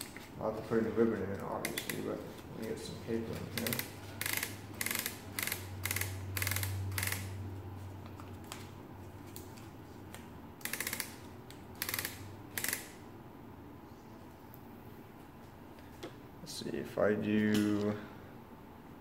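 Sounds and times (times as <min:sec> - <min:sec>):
ratchet clicking: 0:03.5 - 0:07.4, 0:10.6 - 0:13.0.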